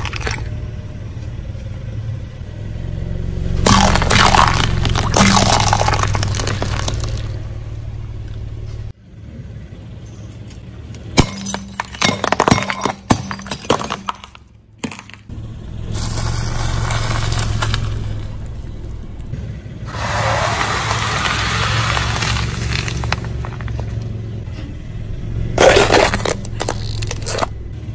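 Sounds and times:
objects crushed under car tyres: 0:00.0 - 0:00.6, 0:03.6 - 0:07.4, 0:11.2 - 0:15.3, 0:16.0 - 0:18.6, 0:19.9 - 0:24.1, 0:25.6 - 0:27.6
car engine running: 0:00.0 - 0:27.9.

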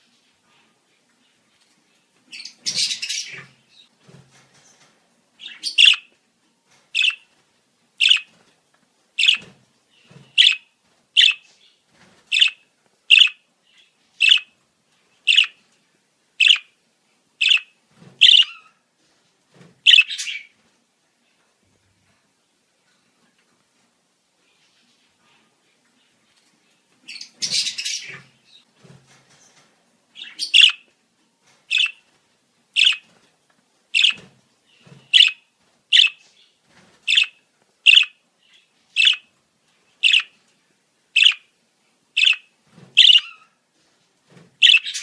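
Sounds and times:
budgerigar chirping: 0:05.4 - 0:06.1, 0:07.0 - 0:07.2, 0:08.0 - 0:08.3, 0:09.2 - 0:09.5, 0:10.4 - 0:11.4, 0:12.3 - 0:13.4, 0:14.2 - 0:14.5, 0:15.3 - 0:15.6, 0:16.4 - 0:16.7, 0:17.4 - 0:18.7, 0:19.9 - 0:20.5, 0:30.2 - 0:30.8, 0:31.7 - 0:32.0, 0:32.8 - 0:33.0, 0:34.0 - 0:34.2, 0:35.1 - 0:36.2, 0:37.1 - 0:38.2, 0:39.0 - 0:39.3, 0:40.0 - 0:40.3, 0:41.2 - 0:41.5, 0:42.2 - 0:43.5, 0:44.6 - 0:45.0.

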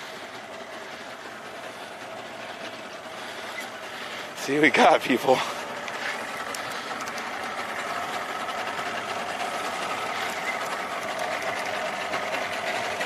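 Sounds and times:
fishing reel whirring and clicking: 0:05.8 - 0:13.0.

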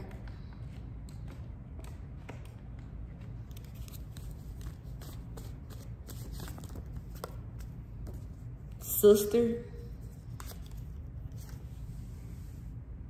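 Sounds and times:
low steady hum: 0:00.0 - 0:13.0
cards shuffling: 0:02.1 - 0:08.4, 0:10.0 - 0:11.8.

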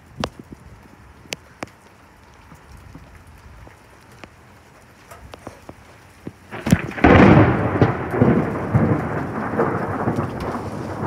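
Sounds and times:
thunder crack and rumble: 0:06.2 - 0:11.0.

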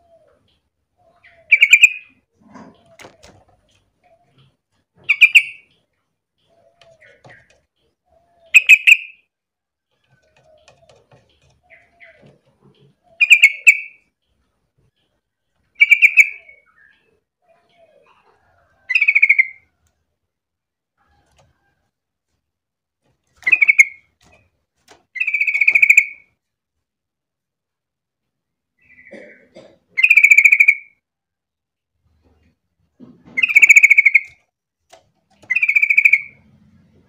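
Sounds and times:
bird chattering calls: 0:01.2 - 0:03.3, 0:05.0 - 0:05.7, 0:08.4 - 0:09.2, 0:10.4 - 0:14.0, 0:23.4 - 0:24.0, 0:25.2 - 0:26.2, 0:30.0 - 0:30.9, 0:33.4 - 0:34.4, 0:35.4 - 0:36.4.

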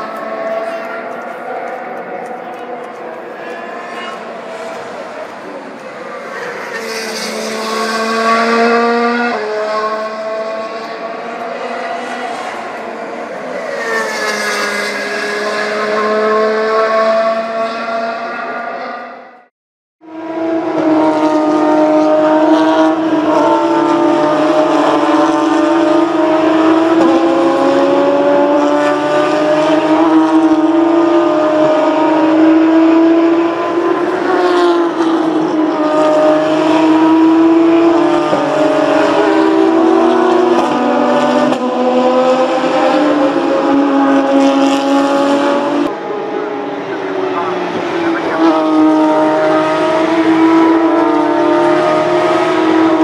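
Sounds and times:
race car engines running hard: 0:00.0 - 0:19.4, 0:20.1 - 0:53.0.

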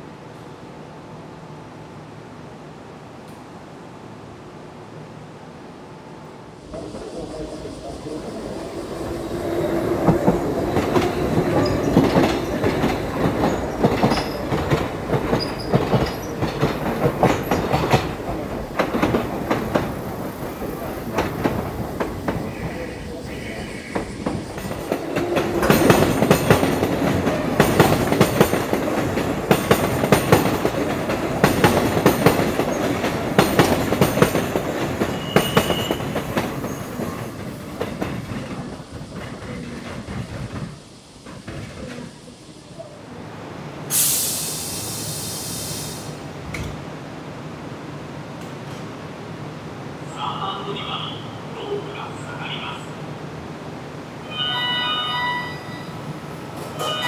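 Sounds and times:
train wheels clacking: 0:06.7 - 0:22.9, 0:23.7 - 0:42.2
loud hiss of air: 0:34.4 - 0:46.4
wheel squeal: 0:35.0 - 0:37.0.

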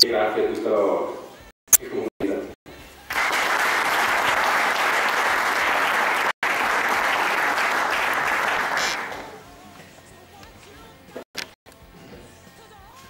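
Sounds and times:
people applauding: 0:03.1 - 0:09.4.

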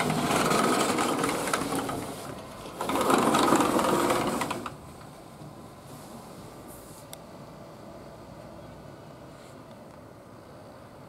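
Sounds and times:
sliding glass door rattling: 0:00.0 - 0:04.8.

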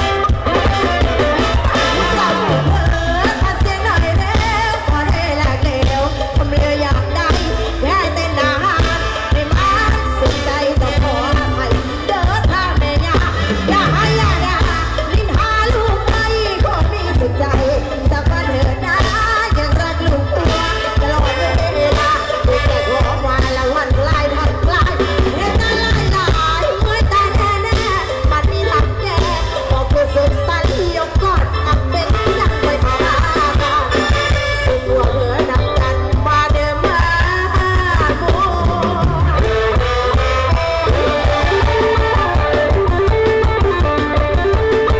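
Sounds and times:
amplified stage music with singing: 0:00.0 - 0:44.9.

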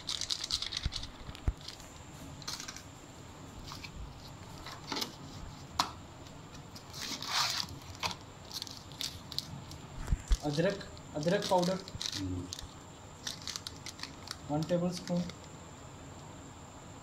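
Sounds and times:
plastic packet crinkling: 0:00.0 - 0:01.8, 0:07.0 - 0:15.5.

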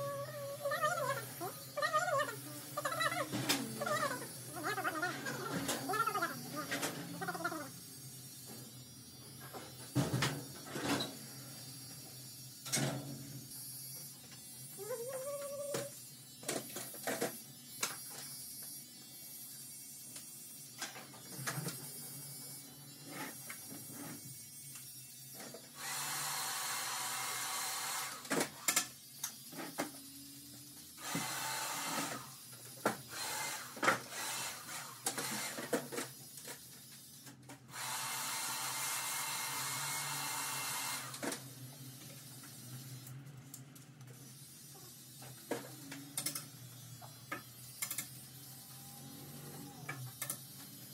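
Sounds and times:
clicks of hair cutting tools: 0:13.8 - 0:18.8, 0:20.1 - 0:22.0, 0:23.3 - 0:25.8, 0:28.1 - 0:37.8, 0:45.2 - 0:48.2, 0:49.8 - 0:50.8.

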